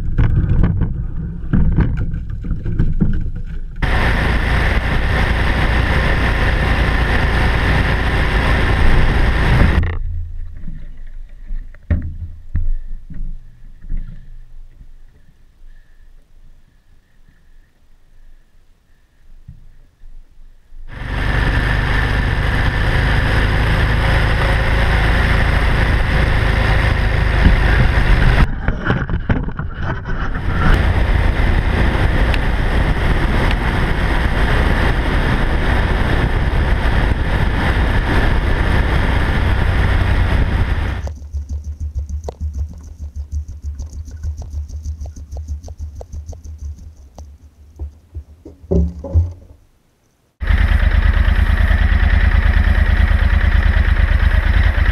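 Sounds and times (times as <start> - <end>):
heavy wind noise: 0.0 - 10.0, 20.9 - 41.1
motorcycle engine: 2.8 - 10.7, 20.9 - 47.2, 50.4 - 54.9
scattered knocks: 41.1 - 49.6
loud thumps: 47.8 - 49.7.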